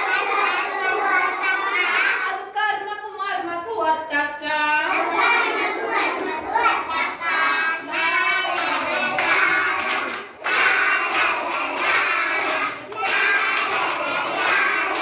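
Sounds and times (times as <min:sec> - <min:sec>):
children singing together: 0:00.0 - 0:02.4, 0:04.8 - 0:15.0
children clapping: 0:05.2 - 0:15.0.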